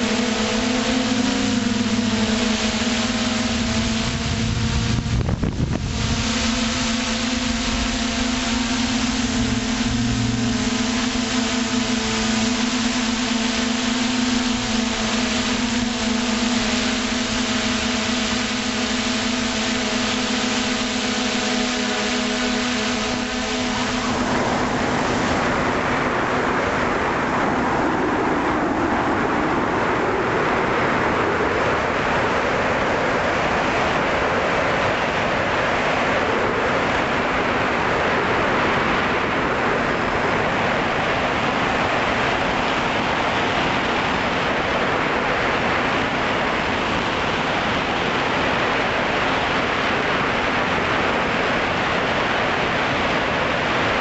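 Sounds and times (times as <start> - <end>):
faint motor hum: 0.0 - 54.0
propeller noise: 0.0 - 54.0
wind rushing: 3.5 - 11.3.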